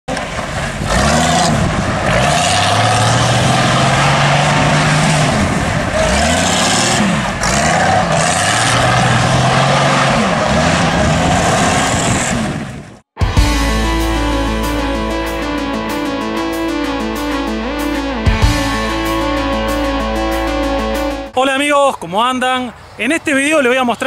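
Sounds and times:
trike engine revving hard: 0:00.6 - 0:12.4.

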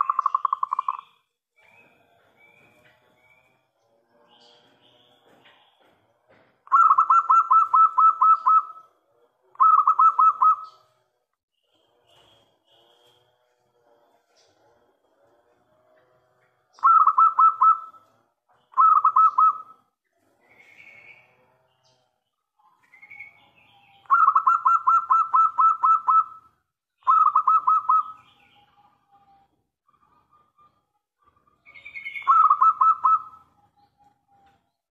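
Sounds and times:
dove cooing: 0:06.7 - 0:08.9, 0:09.5 - 0:10.8, 0:16.8 - 0:18.1, 0:18.7 - 0:19.8, 0:24.1 - 0:28.5, 0:29.9 - 0:33.5.

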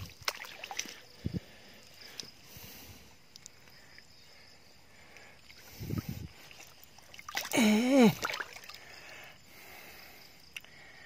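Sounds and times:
water splashing: 0:00.0 - 0:01.2, 0:05.5 - 0:08.9
man exclaiming: 0:07.5 - 0:08.2.

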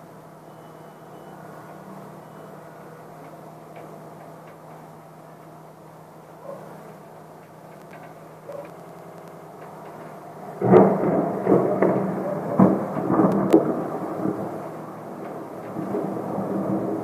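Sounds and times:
thunder: 0:10.5 - 0:17.0.

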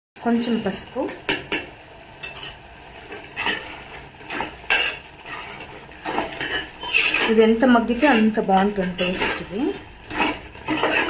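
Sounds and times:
spoon stirring thick sauce in pot: 0:03.1 - 0:11.0.

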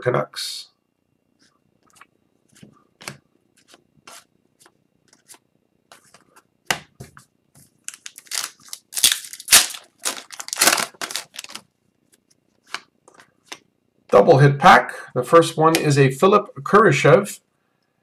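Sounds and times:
foil wrapper crinkling and tearing: 0:07.8 - 0:11.7.

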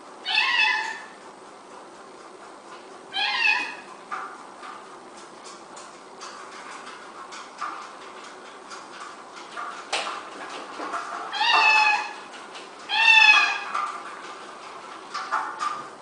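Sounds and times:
cat meowing: 0:00.2 - 0:01.2, 0:03.1 - 0:03.9, 0:11.3 - 0:12.2, 0:12.9 - 0:13.7
exercise wheel clicking and knocking: 0:00.6 - 0:16.0.

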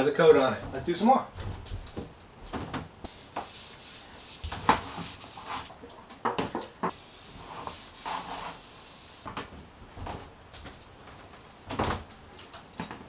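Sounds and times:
cloth rubbing along wood: 0:03.1 - 0:05.8, 0:06.9 - 0:09.3.

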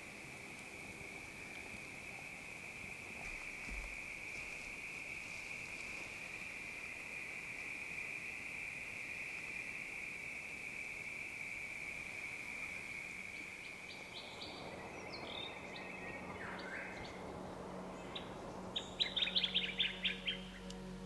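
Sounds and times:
insect chorus: 0:00.0 - 0:21.0
birds calling: 0:13.1 - 0:21.0
sharp bird chirps: 0:18.0 - 0:20.9.

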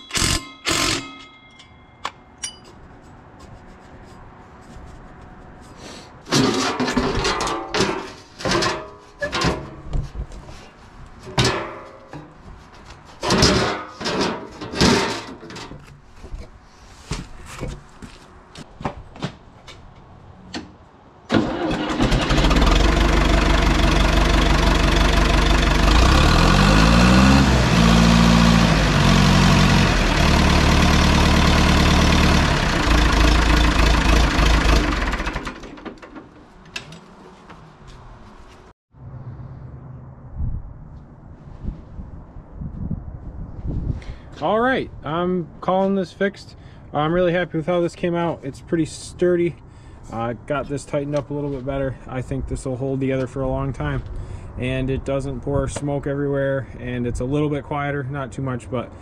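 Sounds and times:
metal clanks and knocks: 0:06.3 - 0:10.2, 0:11.2 - 0:12.5, 0:13.2 - 0:16.0
bulldozer engine running: 0:21.3 - 0:38.5.

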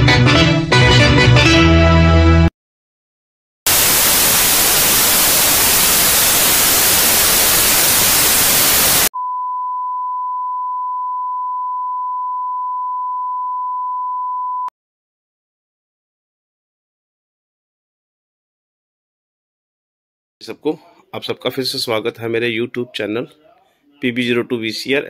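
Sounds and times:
tv static hiss: 0:03.7 - 0:09.1.

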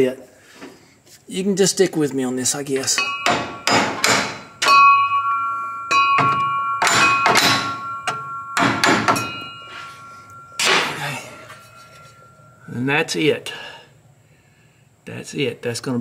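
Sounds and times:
hammer striking metal bracket: 0:02.8 - 0:12.6.

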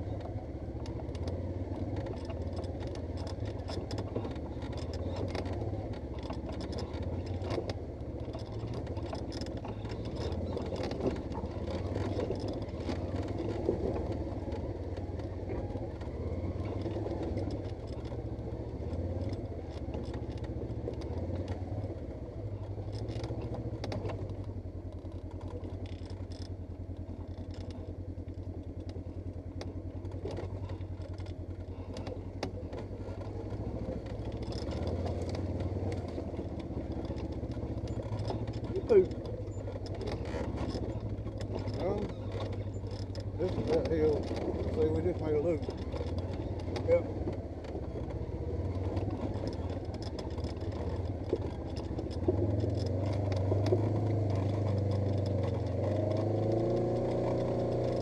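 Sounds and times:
clatter and knocks over rough ground: 0:00.0 - 0:58.0
off-road vehicle engine: 0:00.0 - 0:58.0.

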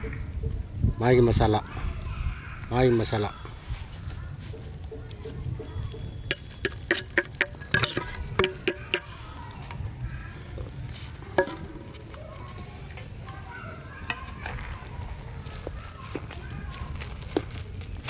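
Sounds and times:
metal utensils clinking on pan: 0:06.3 - 0:09.1.

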